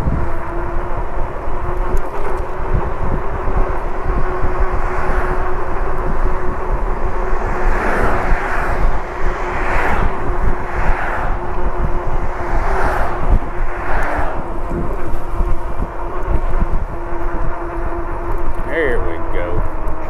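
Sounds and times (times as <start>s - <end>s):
bicycle tyre noise: 0.0s - 20.0s
electric motor hum: 0.0s - 20.0s
wind rushing over microphone: 0.0s - 20.0s
whooshing swells: 3.8s - 16.9s.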